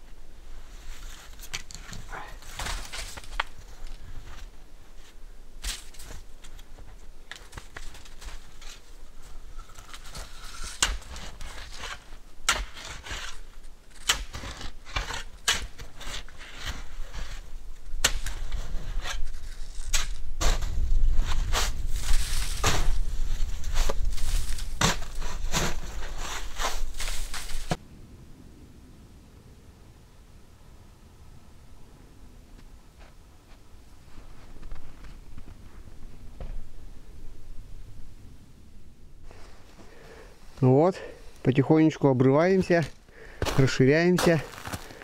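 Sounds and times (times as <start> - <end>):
shovel crunching into packed snow: 7.4 - 17.5, 18.1 - 27.8, 42.5 - 45.0.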